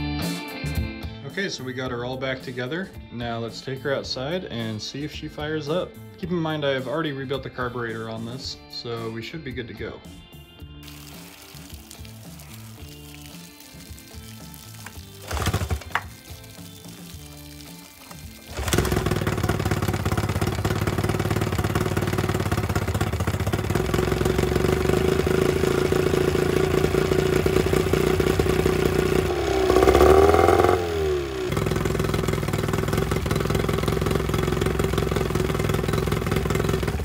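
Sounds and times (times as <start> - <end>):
outboard motor running: 15.2 - 16.2, 18.5 - 37.0.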